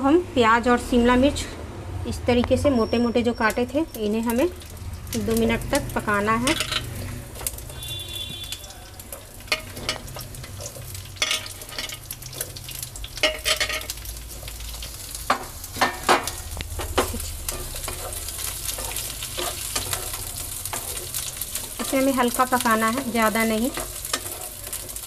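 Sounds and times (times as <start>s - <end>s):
vegetables sizzling in hot oil: 2.8s - 25.0s
knocks and clatters in a pan: 6.4s - 14.6s, 15.2s - 25.0s.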